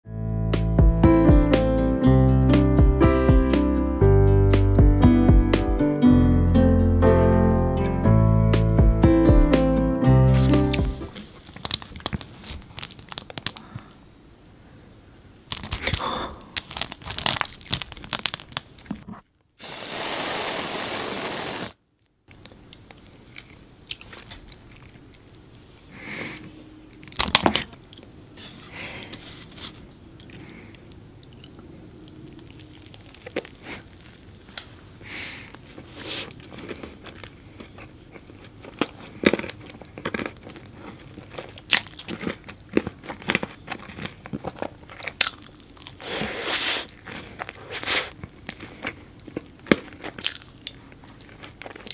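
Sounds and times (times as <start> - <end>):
crunching candy shells: 11.2 - 14.0, 15.5 - 18.9, 35.5 - 46.0, 46.8 - 51.9
loud steady hiss: 19.6 - 21.8
soft chewing: 22.3 - 51.9.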